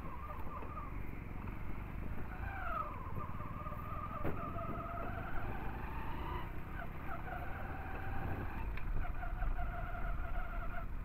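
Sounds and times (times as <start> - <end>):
motorcycle engine running: 0.0 - 11.0
wind and road rumble: 0.0 - 11.0.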